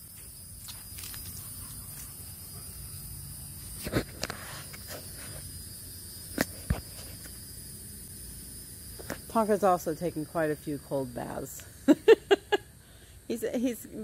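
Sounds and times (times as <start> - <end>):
insect chirring: 0.0 - 14.0.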